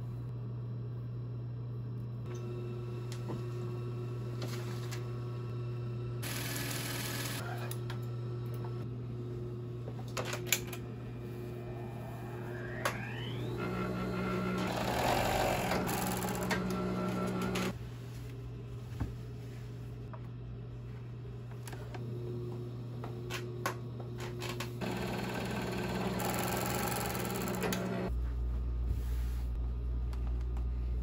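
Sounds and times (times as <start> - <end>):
low motor hum: 0.0 - 6.3, 7.3 - 31.0
serger whining while stitching: 12.3 - 17.8, 24.4 - 28.1.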